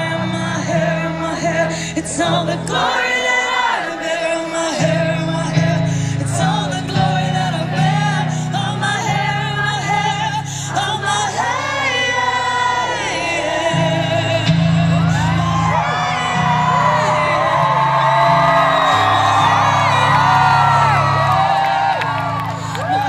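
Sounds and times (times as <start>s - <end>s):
woman singing: 0.0s - 17.6s
piano chords: 0.0s - 23.0s.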